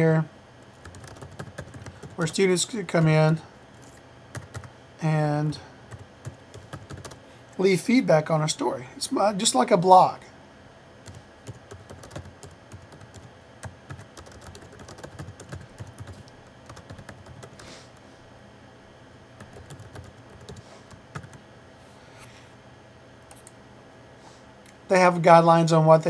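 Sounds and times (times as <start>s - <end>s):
typing on computer keyboard: 0.7s - 2.2s, 4.3s - 4.7s, 5.9s - 7.2s, 11.1s - 17.6s, 19.4s - 21.4s.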